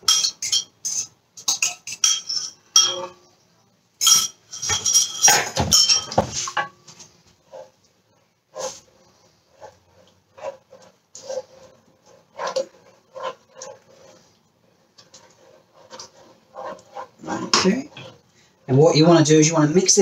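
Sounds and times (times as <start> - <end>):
utensils clinking on ceramic bowls: 0.0 - 3.2, 4.0 - 6.8.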